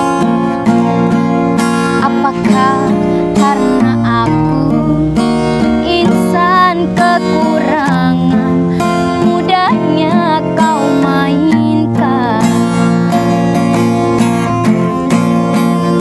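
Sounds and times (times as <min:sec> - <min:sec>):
strummed acoustic guitar: 0:00.0 - 0:16.0
woman singing in high voice: 0:01.9 - 0:13.2.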